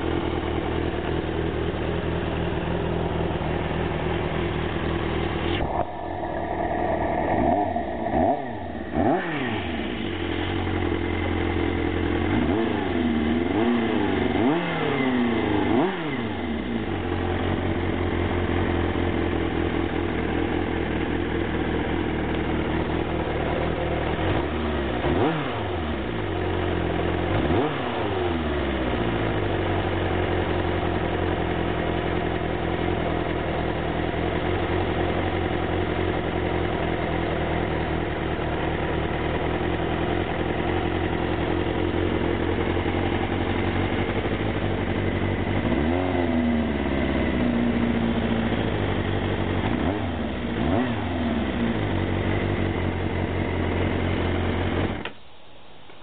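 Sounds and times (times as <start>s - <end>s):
motorcycle engine idling: 0.0s - 27.5s, 28.1s - 55.4s.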